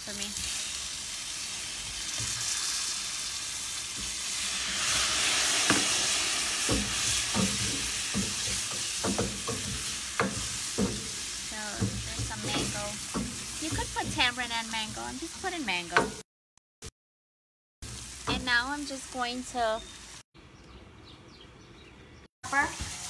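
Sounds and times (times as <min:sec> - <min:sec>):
curry sizzling in a pot: 0:00.0 - 0:16.2, 0:17.8 - 0:20.2, 0:22.5 - 0:23.0
wooden spoon knocking pot: 0:06.6 - 0:15.2, 0:15.9 - 0:16.2.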